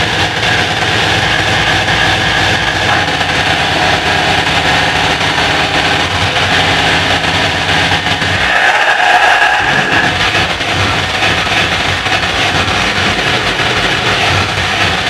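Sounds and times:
hardcore electronic dance music: 0.0 - 15.0.

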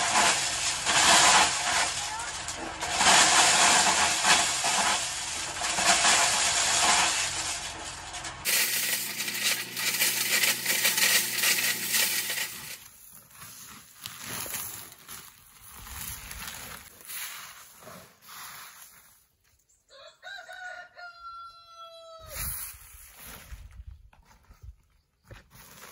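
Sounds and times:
corn kernels pouring into sacks: 0.0 - 17.5.

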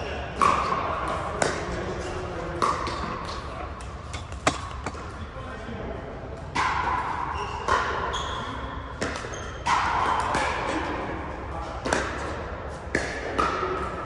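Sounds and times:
paddles striking balls: 0.3 - 5.2, 11.8 - 14.0.

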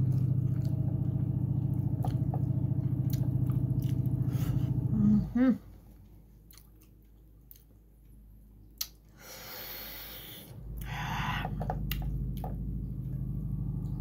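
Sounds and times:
low steady hum: 0.0 - 14.0
breath through the nose: 9.2 - 11.4.

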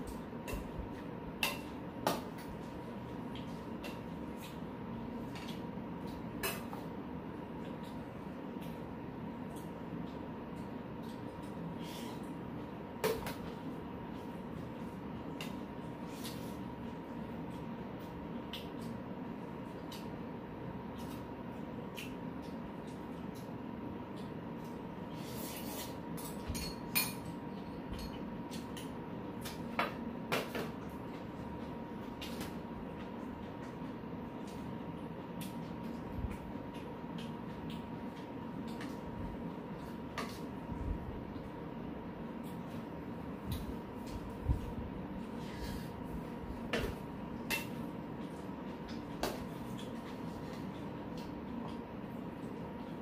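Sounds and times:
steady low hum: 0.0 - 53.0
metal utensils clinking on bowls: 26.2 - 27.3.

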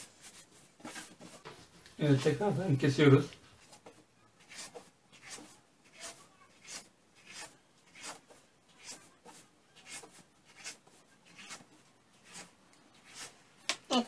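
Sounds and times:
knife cutting dough on table: 3.6 - 13.4.

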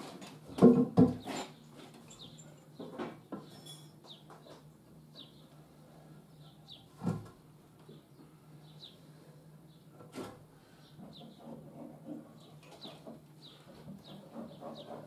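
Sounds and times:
timber and tools knocking: 0.5 - 1.4.

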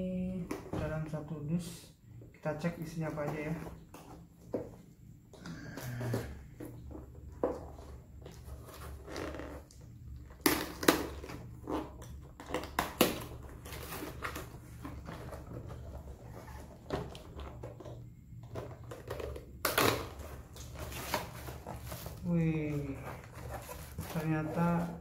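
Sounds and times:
cardboard and plastic rustling: 5.9 - 25.0.

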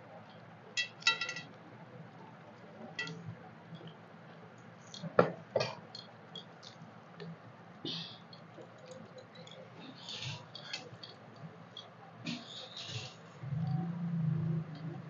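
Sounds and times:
steel tableware clinking: 0.8 - 1.5, 3.0 - 3.2
chewing: 8.3 - 13.8.

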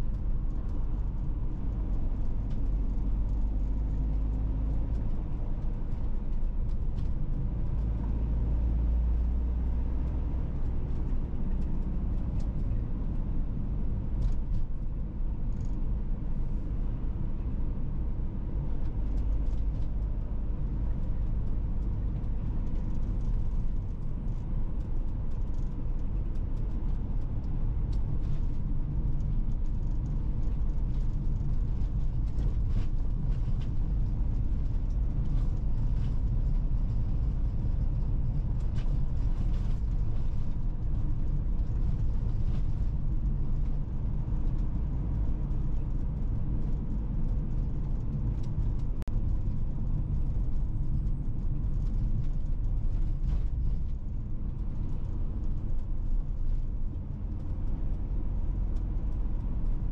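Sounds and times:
car driving rumble: 0.0 - 59.9.

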